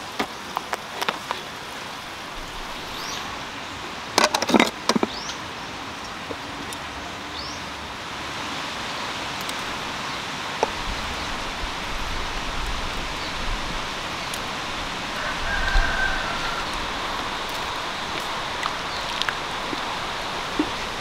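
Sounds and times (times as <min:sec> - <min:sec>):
running water hissing: 0:00.0 - 0:04.2, 0:04.8 - 0:21.0
rooster crowing faintly: 0:15.0 - 0:18.5.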